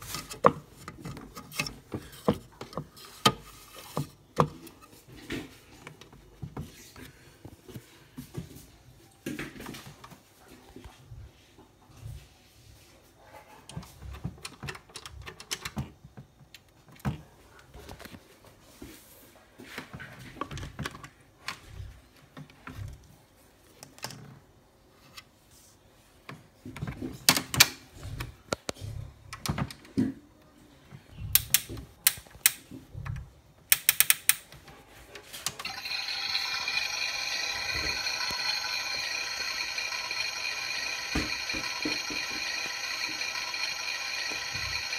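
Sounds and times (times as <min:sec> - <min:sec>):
plastic toy clicks and knocks: 0:31.4 - 0:32.7, 0:33.7 - 0:34.6, 0:35.5 - 0:44.9
high-pitched toy hum: 0:35.6 - 0:44.9.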